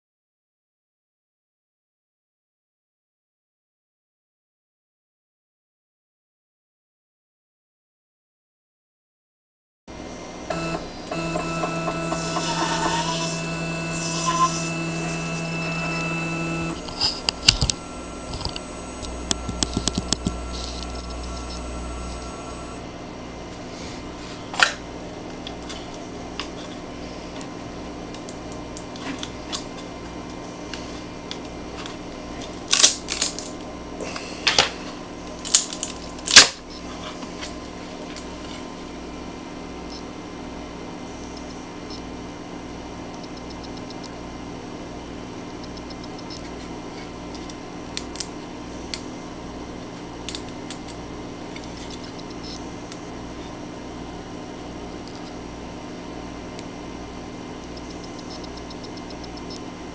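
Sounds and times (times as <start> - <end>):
stepper motors whining: 10.4 - 22.9.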